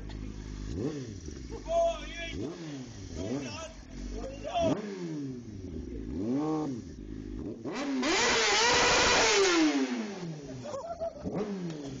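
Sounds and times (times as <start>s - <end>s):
motorcycle engine revving: 0.0s - 12.0s.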